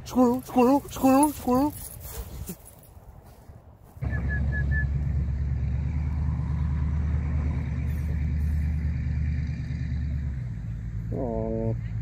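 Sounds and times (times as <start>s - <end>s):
vehicle engine idling: 4.0s - 12.0s.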